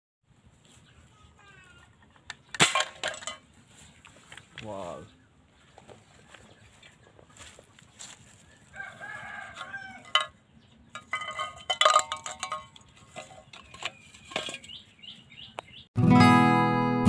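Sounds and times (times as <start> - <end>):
tin cans clinking: 2.5 - 3.5, 9.6 - 14.8
rooster crowing: 8.4 - 10.4.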